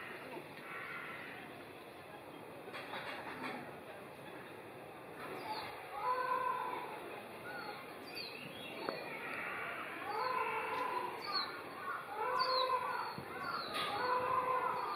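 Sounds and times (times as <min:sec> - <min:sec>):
held bird calls: 0:07.4 - 0:14.9
small birds chirping: 0:07.4 - 0:14.9.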